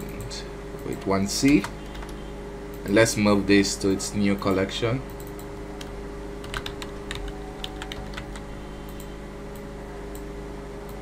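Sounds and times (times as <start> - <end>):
steady low hum: 0.0 - 11.0
keyboard keys clicking: 1.4 - 2.2, 5.1 - 10.2.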